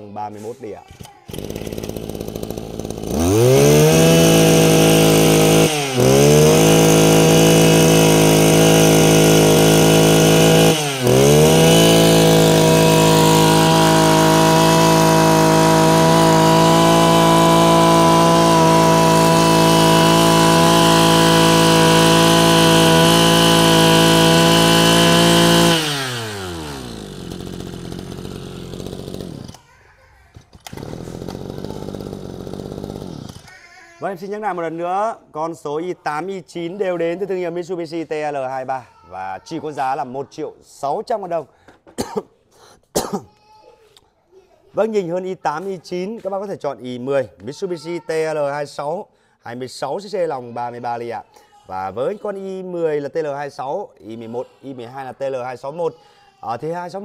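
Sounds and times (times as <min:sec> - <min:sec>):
brush cutter engine revving: 0:00.9 - 0:29.6, 0:30.6 - 0:33.5.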